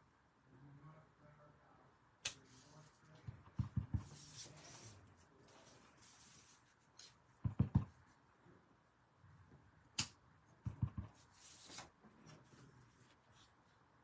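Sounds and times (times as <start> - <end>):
stamp block thumps: 7.4 - 7.9.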